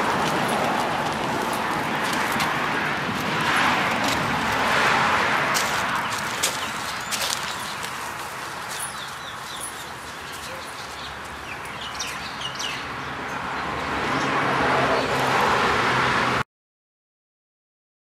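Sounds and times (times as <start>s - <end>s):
motor vehicle hum: 0.0s - 16.4s
small birds chirping: 5.9s - 14.3s.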